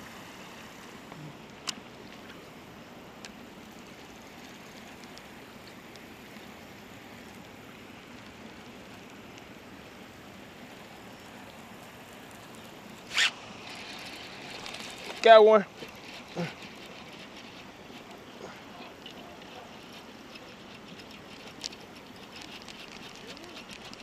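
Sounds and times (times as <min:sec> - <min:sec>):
steady background hiss: 0:00.0 - 0:24.0
faint ticks: 0:03.2 - 0:06.6, 0:14.6 - 0:24.0.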